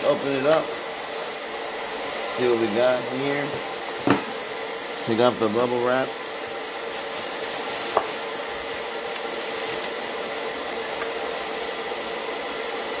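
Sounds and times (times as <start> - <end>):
steady whirring hiss: 0.0 - 13.0
brief knock: 4.0 - 4.4
bubble wrap crinkling: 6.5 - 11.2.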